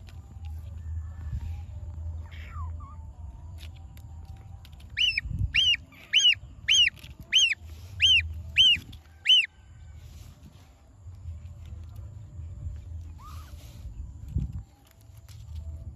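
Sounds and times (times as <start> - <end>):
gosling peeping: 5.0 - 9.5.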